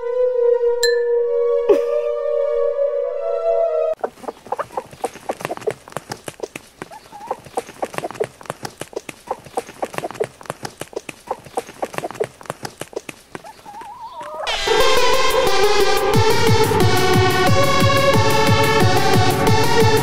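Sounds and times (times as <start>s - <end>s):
chicken clucking: 4.0s - 14.9s.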